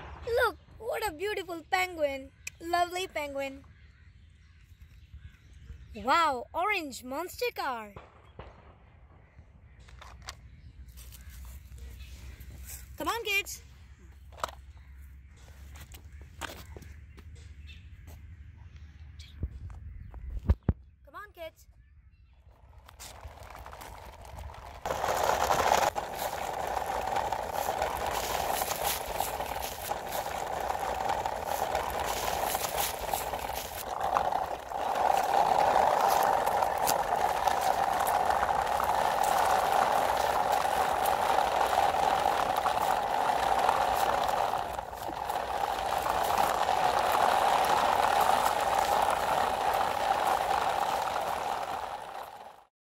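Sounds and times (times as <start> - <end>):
plastic wheels rolling on concrete: 0.0 - 3.4, 9.8 - 17.1, 22.4 - 52.7
loose plastic figures shaking: 22.8 - 52.7.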